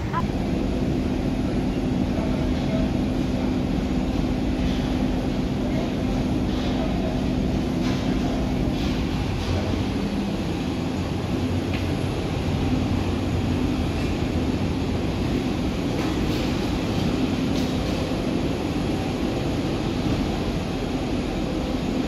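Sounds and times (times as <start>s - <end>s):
faint hum: 0.0s - 8.8s.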